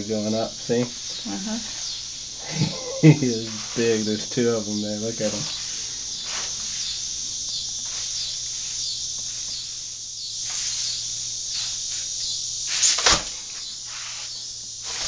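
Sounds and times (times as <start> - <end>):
broom brushing and scraping: 0.0 - 15.0
insects chirring: 0.0 - 15.0.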